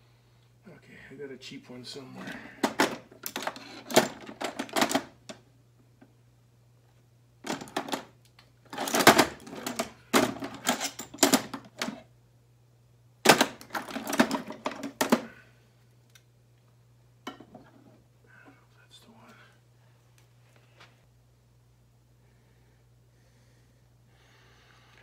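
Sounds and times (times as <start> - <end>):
metal hand tools clinking and clattering: 8.8 - 11.6.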